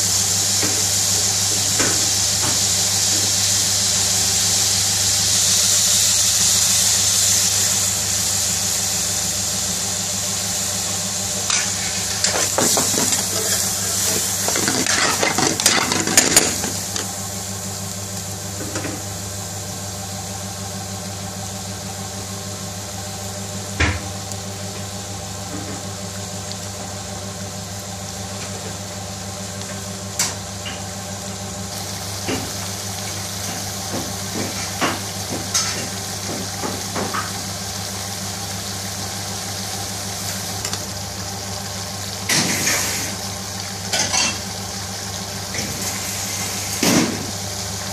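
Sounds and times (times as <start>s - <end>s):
sauce simmering and sizzling: 0.0s - 47.9s.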